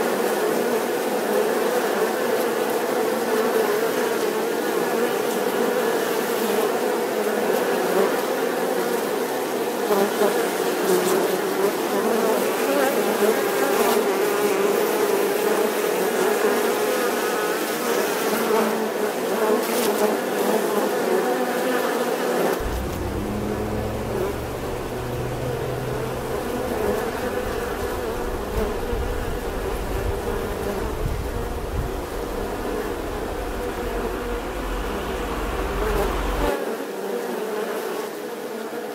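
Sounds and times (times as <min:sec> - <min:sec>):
bees buzzing: 0:22.6 - 0:36.5
low rumble: 0:22.6 - 0:36.5.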